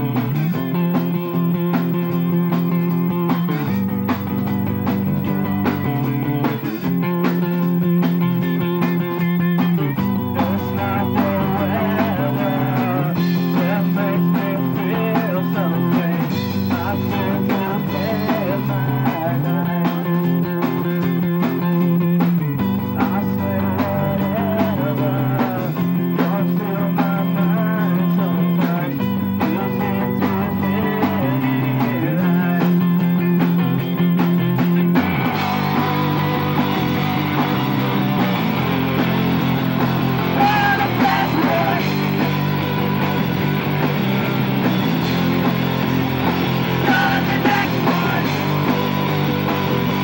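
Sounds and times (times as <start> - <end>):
rock band playing: 0.0 - 50.0.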